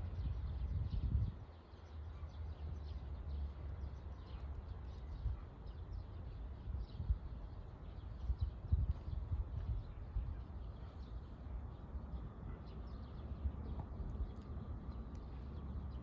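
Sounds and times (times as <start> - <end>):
small birds chirping: 0.0 - 16.0
steady low rumble: 6.1 - 16.0.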